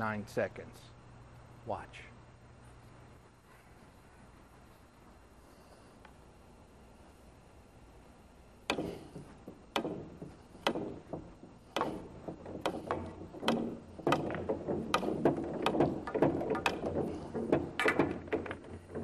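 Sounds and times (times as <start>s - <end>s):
balls dropping into pockets: 8.7s - 19.0s
pool balls clacking: 8.7s - 19.0s.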